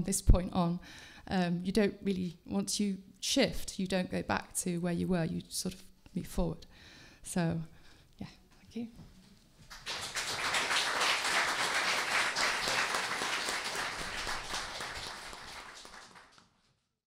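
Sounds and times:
audience applauding: 0:09.7 - 0:16.6.

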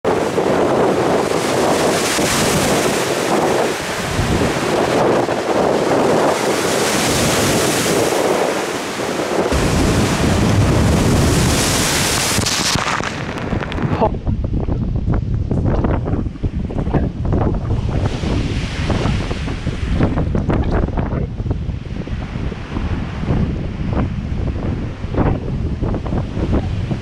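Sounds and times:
wind gusts buffeting microphone: 0:00.0 - 0:27.0
waves breaking over rocks: 0:00.1 - 0:14.3.

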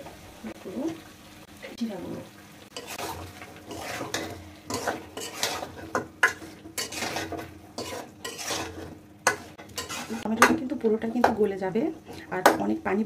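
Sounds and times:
metal spatula scraping a pot: 0:02.7 - 0:10.5.

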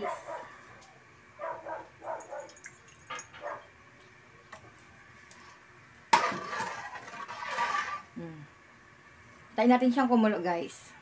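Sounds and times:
dog barking: 0:00.0 - 0:00.6, 0:01.4 - 0:02.6, 0:03.4 - 0:03.7.

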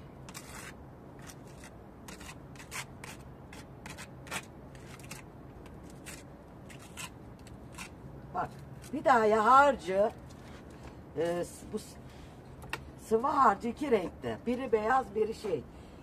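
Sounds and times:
trowel scraping wet plaster: 0:00.3 - 0:05.2, 0:05.8 - 0:07.9.

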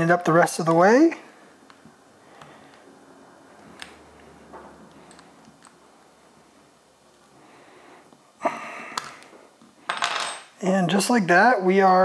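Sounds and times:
soft clicks and light scraping: 0:04.9 - 0:05.8.

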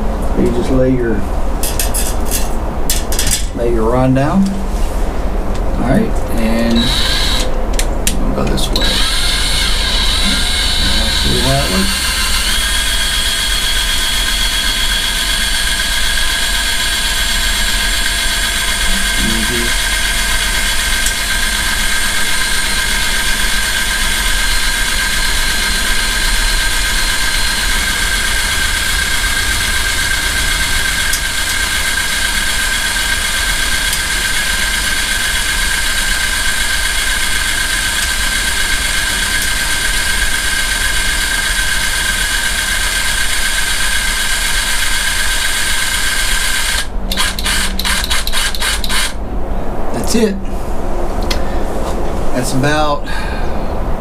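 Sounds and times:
power drill whining: 0:06.6 - 0:07.5, 0:08.7 - 0:49.2.

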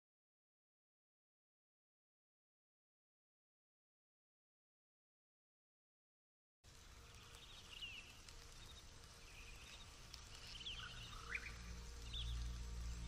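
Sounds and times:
low hum: 0:06.7 - 0:13.0
bird chirps: 0:07.0 - 0:13.0
deep rumble: 0:08.0 - 0:13.0.

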